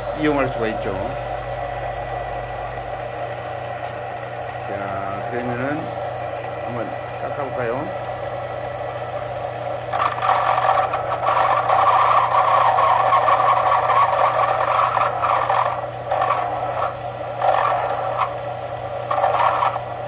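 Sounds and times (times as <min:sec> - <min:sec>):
lathe motor hum: 0:00.0 - 0:20.0
tool scraping spinning wood: 0:09.8 - 0:20.0.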